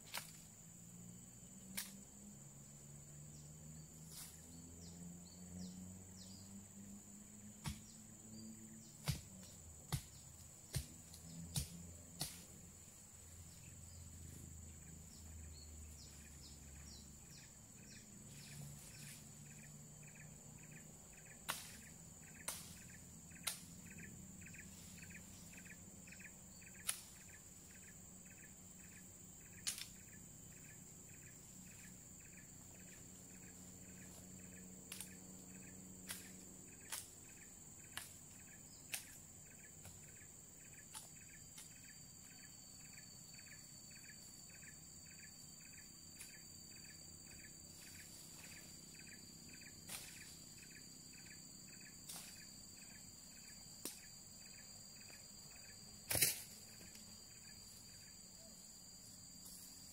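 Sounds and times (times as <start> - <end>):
insect pulsed chirp: 0.0 - 59.9
insects whining: 0.0 - 59.9
blade chopping into brush: 7.6 - 8.0, 9.0 - 12.6, 21.5 - 22.8, 56.1 - 56.6.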